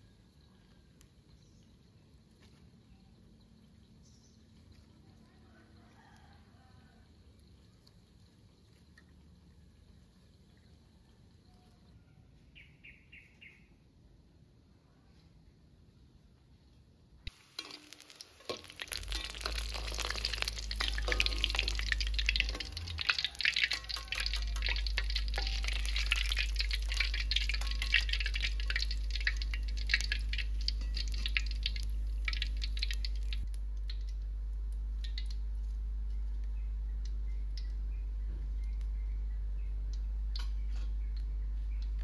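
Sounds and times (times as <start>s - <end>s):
metal spatula in wok: 17.3s - 33.4s
food sizzling in hot oil: 17.3s - 33.5s
steady low hum: 18.9s - 42.0s.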